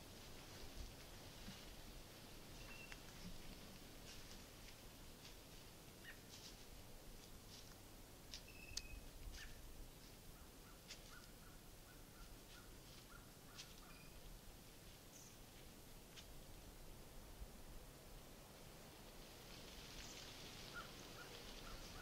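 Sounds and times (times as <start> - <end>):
rustles in dry leaf litter: 0.0 - 7.8, 18.5 - 22.0.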